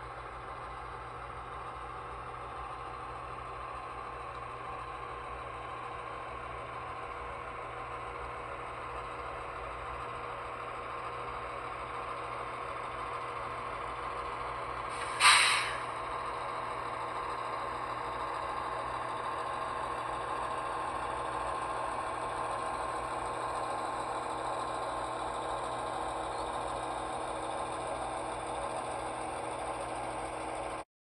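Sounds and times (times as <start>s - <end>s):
model locomotive engine sound: 0.0s - 30.8s
short loud burst of noise: 14.9s - 16.0s.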